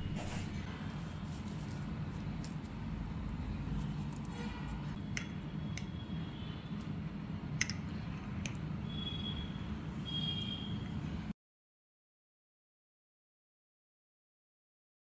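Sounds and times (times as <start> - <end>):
utensils tapping on a mixing bowl: 7.6 - 8.6.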